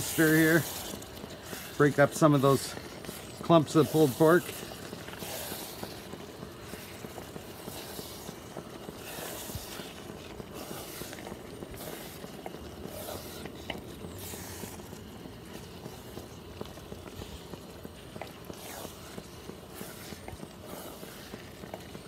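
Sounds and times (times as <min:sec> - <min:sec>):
steady hiss: 0:00.0 - 0:12.2
wooden spoon stirring beans: 0:00.0 - 0:22.0.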